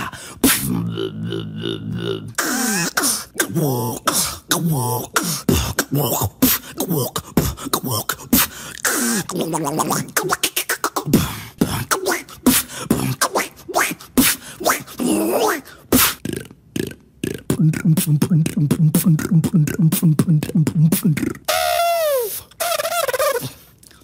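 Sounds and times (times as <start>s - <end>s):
beatboxing clicks and pops: 7.4s - 14.4s, 16.0s - 21.7s, 22.5s - 24.0s.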